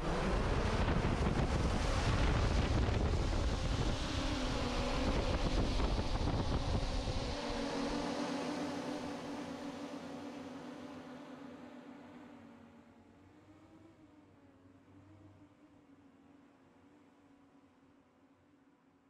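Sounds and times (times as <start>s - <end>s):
drone motor and propeller hum: 0.0s - 14.3s.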